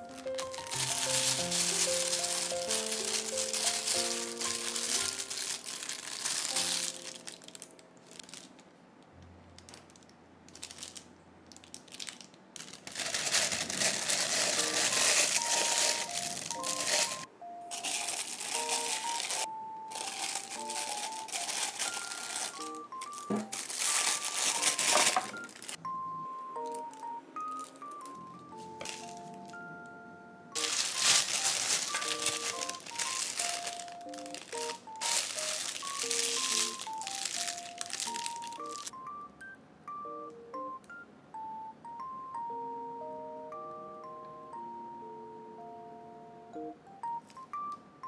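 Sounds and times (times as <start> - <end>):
plastic bag crinkling: 0.0 - 8.6, 9.7 - 25.8, 28.6 - 29.6, 30.6 - 38.9
soft plucked-note music: 14.3 - 41.0.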